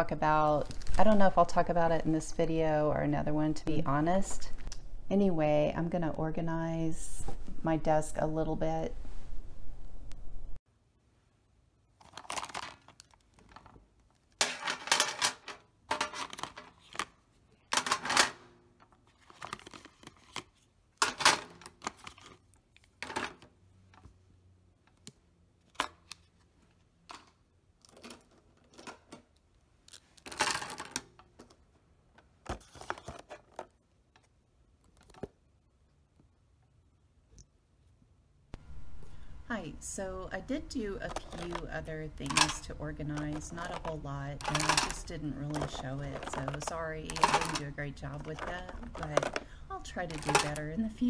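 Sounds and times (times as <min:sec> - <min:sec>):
plastic markers clattering into tin box: 0:41.1 - 0:51.0.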